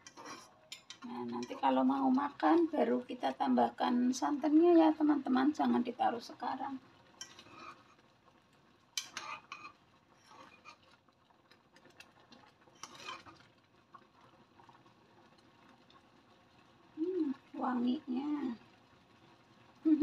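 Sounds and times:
spoon stirring and scraping a pot: 0:00.0 - 0:02.7, 0:07.1 - 0:08.1, 0:08.9 - 0:13.6.

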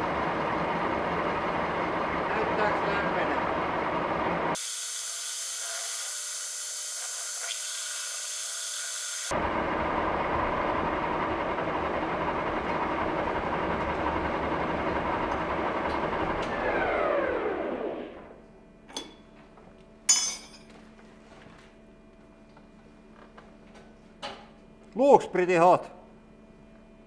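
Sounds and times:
lathe running: 0:00.0 - 0:18.4
machine spinning down whine: 0:07.5 - 0:18.6.

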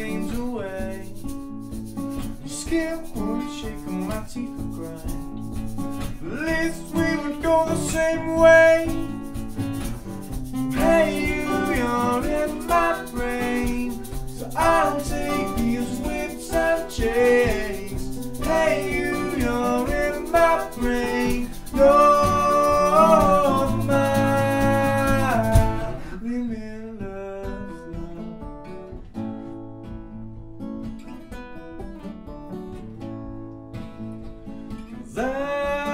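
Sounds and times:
guitar playing: 0:00.0 - 0:26.2, 0:27.0 - 0:35.9
men singing together: 0:10.7 - 0:26.1, 0:35.2 - 0:35.9.

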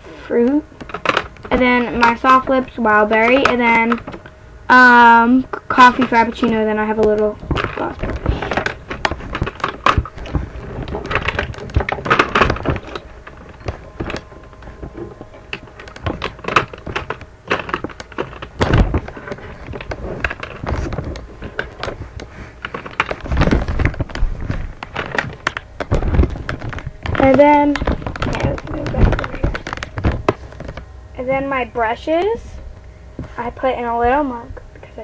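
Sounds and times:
plastic tubes clicking and rattling: 0:00.4 - 0:30.8
thumps and rubbing of webcam: 0:05.8 - 0:30.8.

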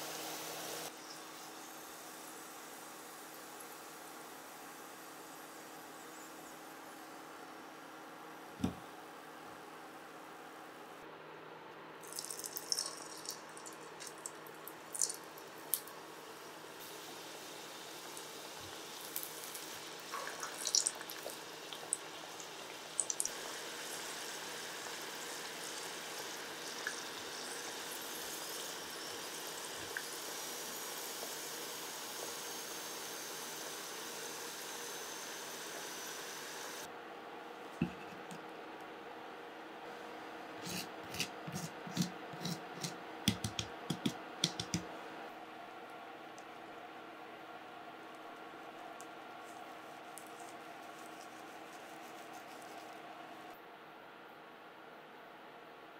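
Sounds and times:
potatoes deep-frying in oil: 0:00.0 - 0:06.7, 0:12.0 - 0:36.9.

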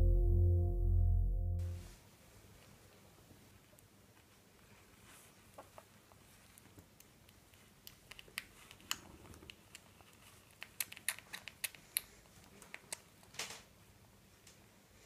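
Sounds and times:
squirrel suckling wet clicks: 0:06.5 - 0:13.3.

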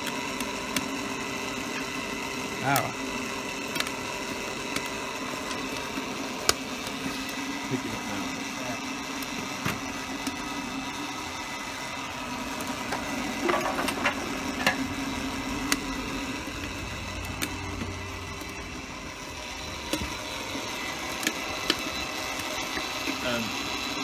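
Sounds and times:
electric blower whirring: 0:00.0 - 0:24.0.

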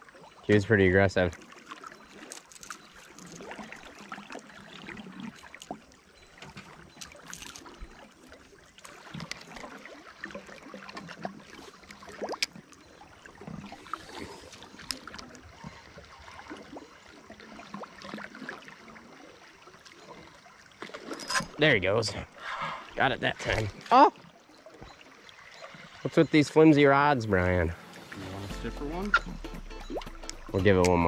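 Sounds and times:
river water lapping against raft: 0:00.0 - 0:31.0
small splashes: 0:01.2 - 0:21.6.

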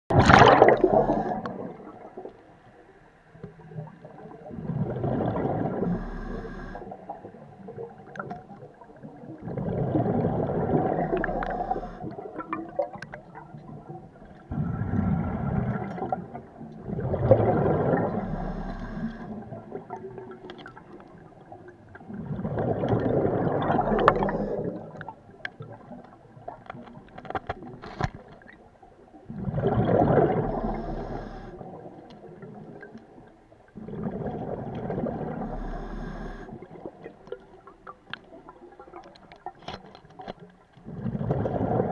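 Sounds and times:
diver exhaling bubbles through regulator: 0:00.1 - 0:02.3, 0:04.4 - 0:07.2, 0:09.4 - 0:13.0, 0:14.4 - 0:20.3, 0:22.0 - 0:25.1, 0:29.3 - 0:31.9, 0:33.8 - 0:37.0, 0:40.8 - 0:41.9
diver inhaling through regulator: 0:00.6 - 0:01.8, 0:05.5 - 0:07.0, 0:10.3 - 0:12.2, 0:18.0 - 0:19.4, 0:23.3 - 0:24.8, 0:30.4 - 0:31.8, 0:35.3 - 0:36.7.

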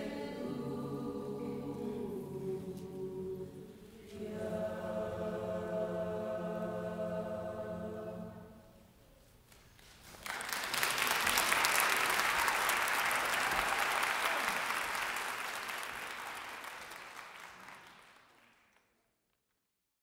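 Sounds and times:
audience applauding: 0:10.0 - 0:19.1.

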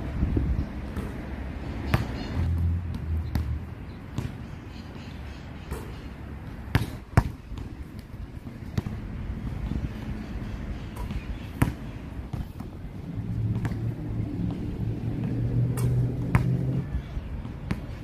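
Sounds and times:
basketball bouncing on hard court: 0:02.9 - 0:04.4, 0:06.7 - 0:09.0, 0:11.0 - 0:12.8, 0:15.2 - 0:16.7.

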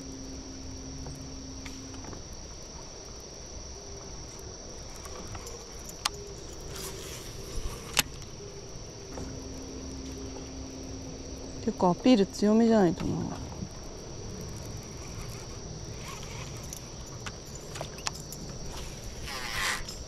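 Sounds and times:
insects droning: 0:00.0 - 0:20.0
steady low hum: 0:00.0 - 0:20.0
low rumble: 0:07.4 - 0:17.7.

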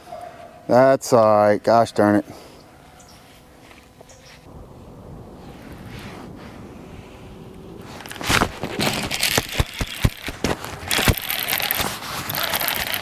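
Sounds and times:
fishing reel clicks and knocks: 0:10.9 - 0:13.0.

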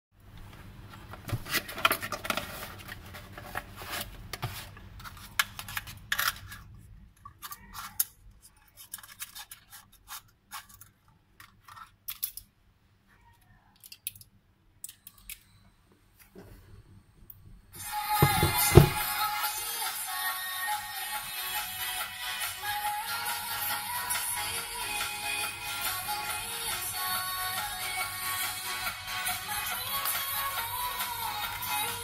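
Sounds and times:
cardboard rustling and scraping: 0:01.0 - 0:06.7.

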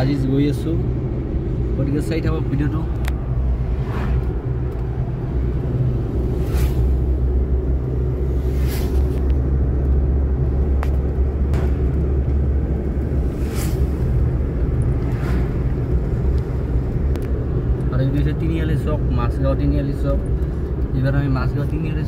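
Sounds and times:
car engine and road rumble: 0:00.0 - 0:22.0
soft swishes: 0:03.5 - 0:04.4, 0:06.1 - 0:07.3, 0:08.3 - 0:09.3, 0:13.1 - 0:15.7.

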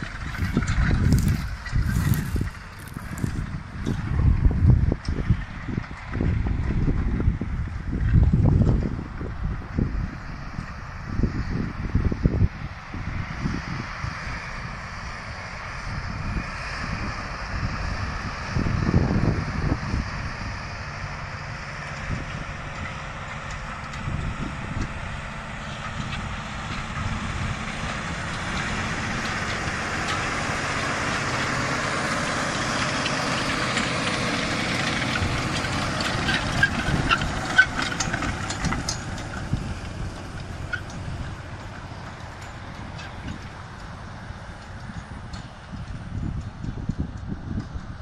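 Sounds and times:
tractor diesel engine under load: 0:00.0 - 0:48.0
sharp clicks and clanks: 0:25.7 - 0:47.8.

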